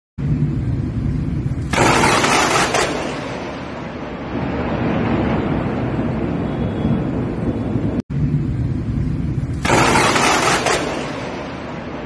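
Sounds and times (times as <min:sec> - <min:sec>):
thunder rumbling: 0:00.2 - 0:12.0
sharp thunderclap: 0:01.7 - 0:08.1, 0:09.5 - 0:11.9.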